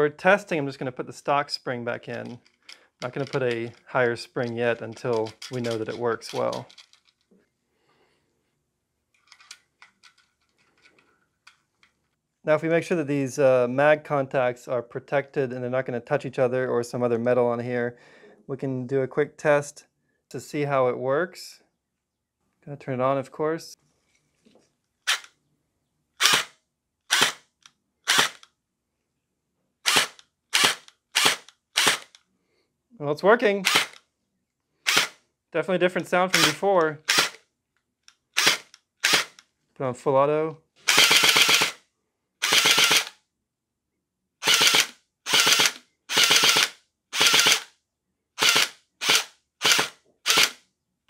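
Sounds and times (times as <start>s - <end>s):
gel blaster gearbox shots: 33.6s - 34.0s.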